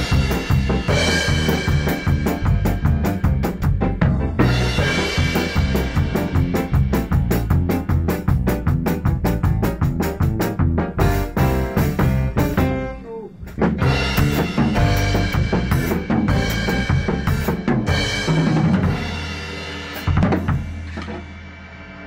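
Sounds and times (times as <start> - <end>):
bass and piano track: 0.0 - 22.0
drum kit playing: 0.0 - 22.0.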